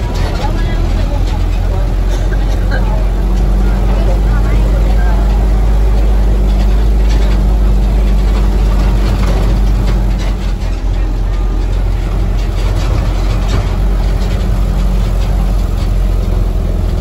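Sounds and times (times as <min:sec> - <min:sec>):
engine droning: 0:00.0 - 0:17.0
rough rushing noise: 0:00.0 - 0:17.0.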